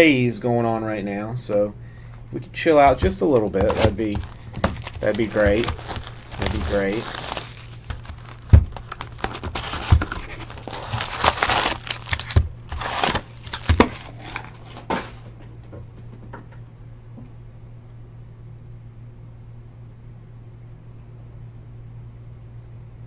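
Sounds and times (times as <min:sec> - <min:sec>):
low steady hum: 0:00.0 - 0:23.0
cardboard box tearing: 0:03.6 - 0:15.0.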